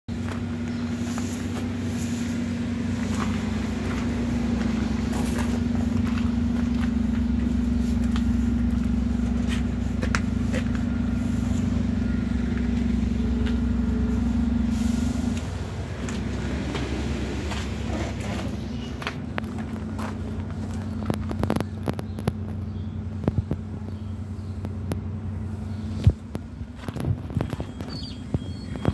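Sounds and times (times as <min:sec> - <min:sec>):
bus engine idling: 0:00.1 - 0:28.9
footsteps: 0:00.2 - 0:22.6.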